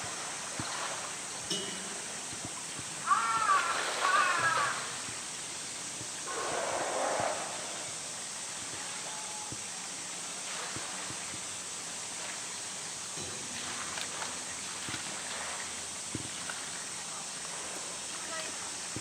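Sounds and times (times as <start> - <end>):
soft lapping water: 0.0 - 19.0
steady outdoor hiss: 0.0 - 19.0
polar bear splashing in water: 3.0 - 5.2.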